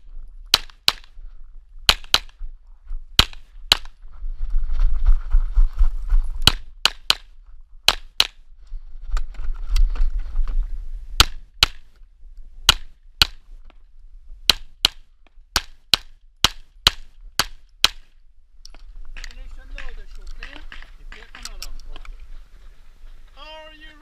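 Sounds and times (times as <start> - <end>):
wind noise on microphone: 0.0 - 14.5, 16.6 - 24.0
rustling on microphone: 2.4 - 6.5, 8.6 - 11.1, 18.8 - 23.5.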